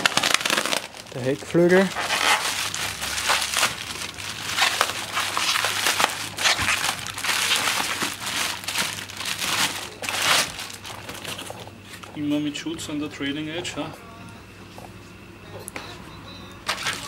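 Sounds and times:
bubble wrap crinkling and rustling: 0:00.0 - 0:12.4, 0:16.6 - 0:17.0.

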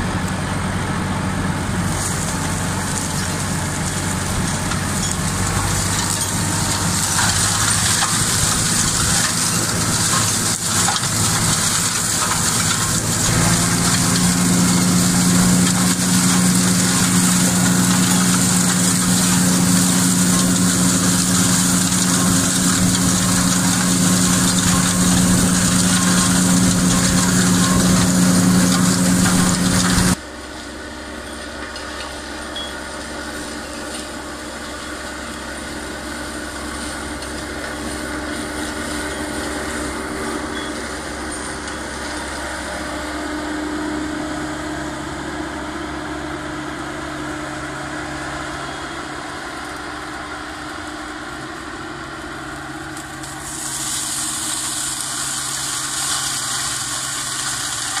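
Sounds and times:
tractor diesel engine running: 0:00.0 - 0:58.0
mulcher shredding hiss: 0:01.8 - 0:30.2, 0:53.0 - 0:58.0.

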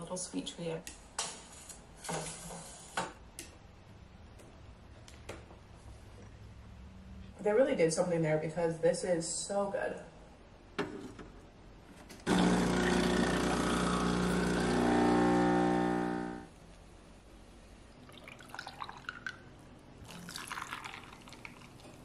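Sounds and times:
espresso machine pump humming: 0:12.3 - 0:16.5
milk pouring into a glass: 0:18.0 - 0:22.0.

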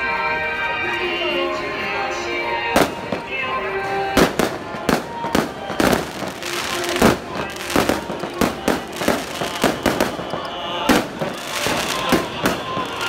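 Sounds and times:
held musical tones: 0:00.0 - 0:13.0
firecrackers banging: 0:02.6 - 0:13.0.

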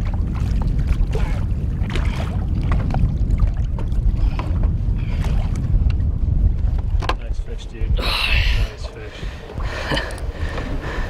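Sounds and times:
splashes and knocks: 0:00.0 - 0:06.0
water sloshing against boat: 0:00.0 - 0:11.0
wind rumbling on microphone: 0:00.0 - 0:11.0.

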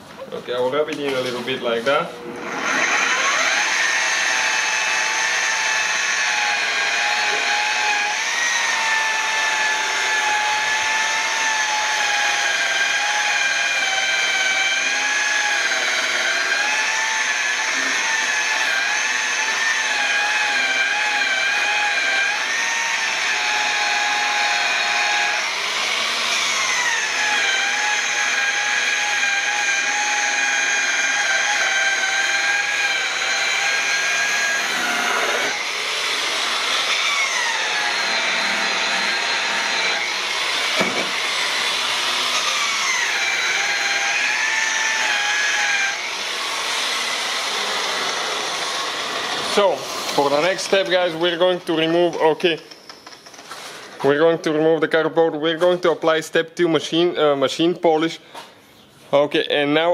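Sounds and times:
rotary polisher motor whine: 0:02.3 - 0:51.5.

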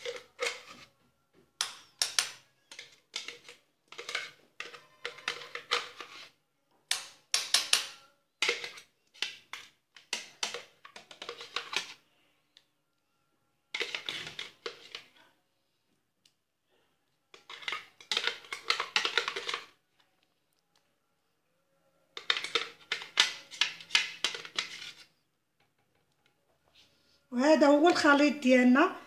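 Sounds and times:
spoon scraping plastic jug: 0:00.0 - 0:01.0, 0:02.1 - 0:06.4, 0:07.7 - 0:12.1, 0:13.7 - 0:15.2, 0:17.3 - 0:20.4, 0:22.1 - 0:25.3.

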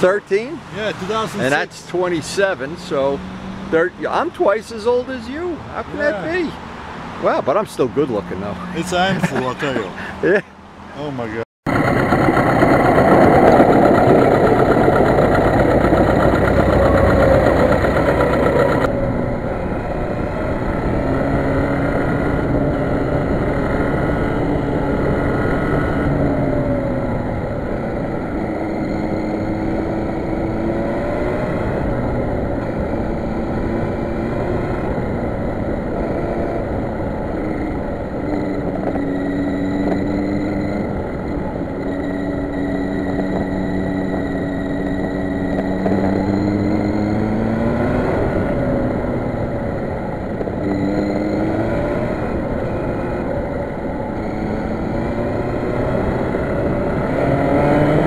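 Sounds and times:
motorcycle engine revving: 0:00.0 - 0:06.5, 0:11.7 - 0:58.0
wind noise: 0:11.7 - 0:58.0.

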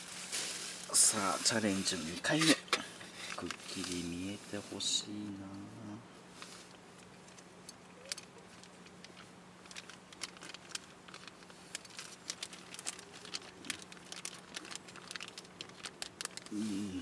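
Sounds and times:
faint low hum: 0:00.1 - 0:17.0
light crackles and clicks: 0:06.4 - 0:16.5.

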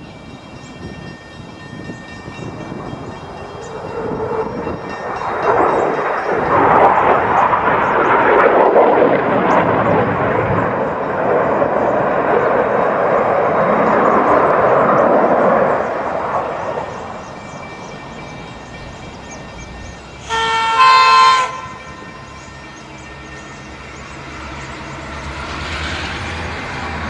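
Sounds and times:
aircraft rushing noise: 0:02.4 - 0:27.0
locomotive horn: 0:20.2 - 0:22.2.

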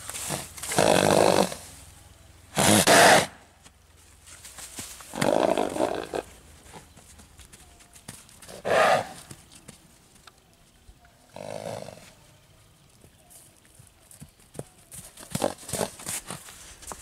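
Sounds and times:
horse snorting: 0:00.2 - 0:01.7, 0:02.6 - 0:03.4, 0:05.1 - 0:06.3, 0:08.5 - 0:09.3, 0:11.3 - 0:12.1, 0:15.3 - 0:16.4.

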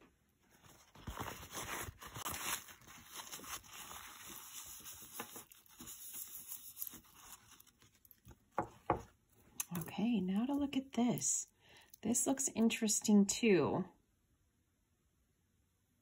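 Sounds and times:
packaging rustling and crinkling: 0:00.4 - 0:09.6.

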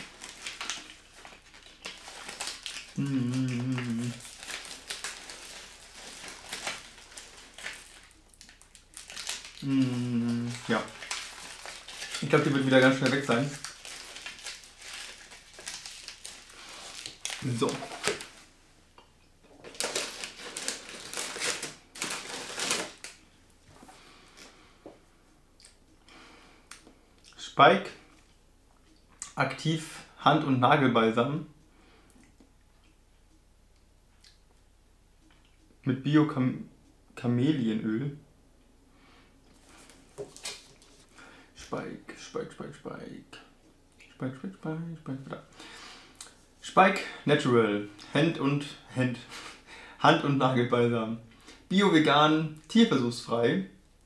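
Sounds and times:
paper packaging rustling: 0:00.0 - 0:18.5, 0:19.6 - 0:23.2, 0:39.6 - 0:41.1
closed-mouth mmm: 0:03.0 - 0:04.2, 0:09.6 - 0:10.7.

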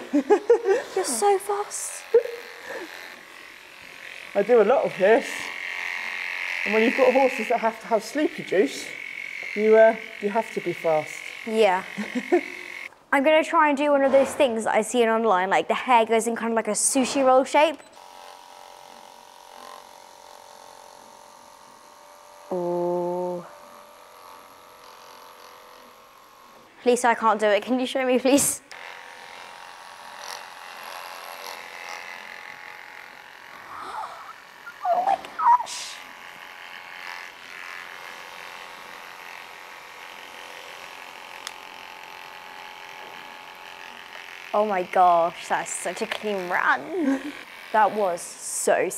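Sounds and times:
electric clippers humming: 0:00.0 - 0:13.0, 0:17.2 - 0:48.9.

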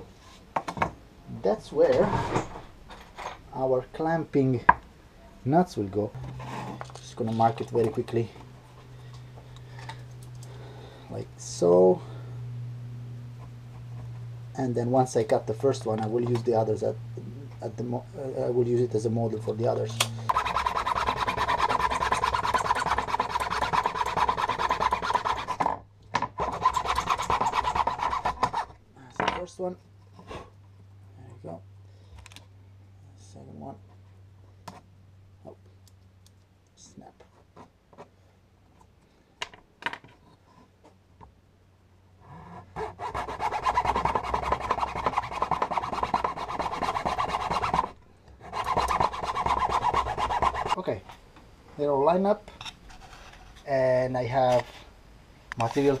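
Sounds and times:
hand saw cutting wood: 0:20.2 - 0:25.8, 0:26.4 - 0:28.8, 0:42.6 - 0:50.8.

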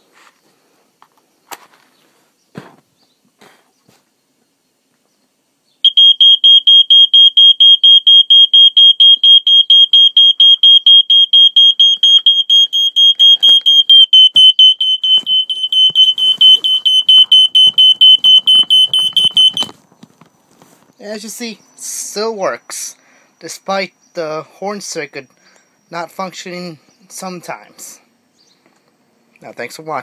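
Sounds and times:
smoke alarm rapid beeps: 0:05.8 - 0:19.8
knocks and rustling of handling: 0:15.0 - 0:21.0.

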